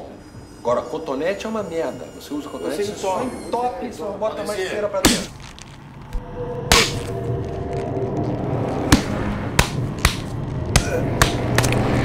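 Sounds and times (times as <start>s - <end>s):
low steady drone: 5.6s - 12.0s.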